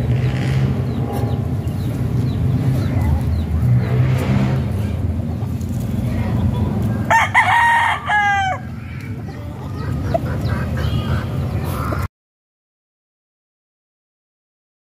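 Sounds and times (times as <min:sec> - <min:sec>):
rooster crowing: 0:07.1 - 0:08.8.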